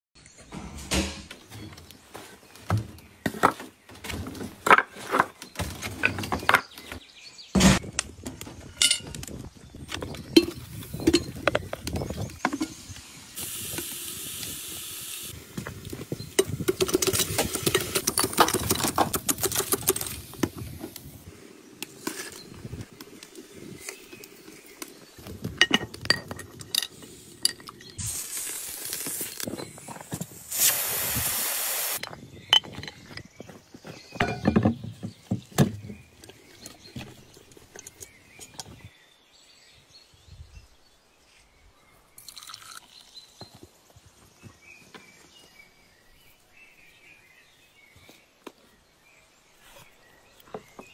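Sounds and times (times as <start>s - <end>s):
metal pot and lid clinking: 8.8s - 9.1s, 34.2s - 34.6s
frying sizzle: 12.8s - 15.4s, 28.0s - 29.5s, 30.6s - 32.0s
pressure cooker steam hiss: 13.4s - 15.4s, 30.5s - 32.0s.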